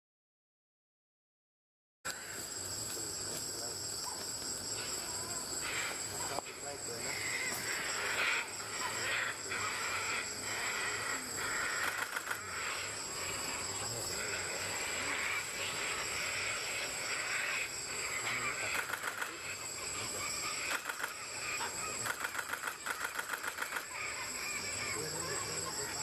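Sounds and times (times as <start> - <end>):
rapid rhythmic wingbeats: 7.2 - 25.0.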